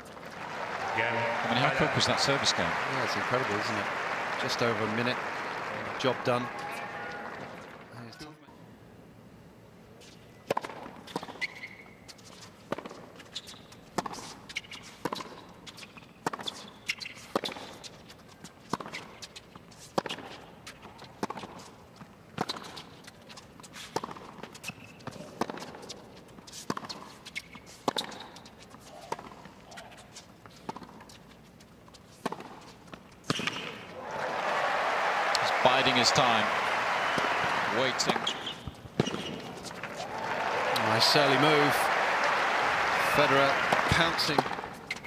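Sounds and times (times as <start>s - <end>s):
faint crowd ambience: 0.0s - 10.5s, 33.6s - 45.0s
tennis ball bouncing: 23.9s - 26.0s, 27.8s - 28.3s, 32.2s - 33.8s, 35.3s - 41.3s, 43.2s - 45.0s
tennis ball hit by rackets: 33.2s - 33.8s, 38.0s - 40.1s, 43.3s - 45.0s.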